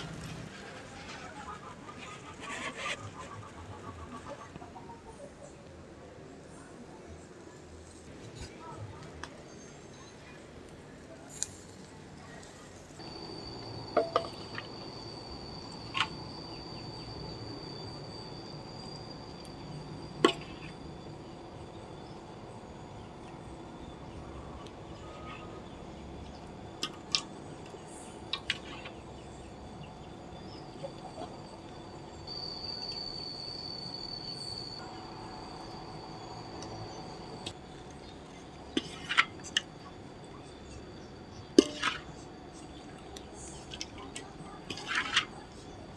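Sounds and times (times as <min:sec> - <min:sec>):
insect drone: 0:12.5 - 0:45.9.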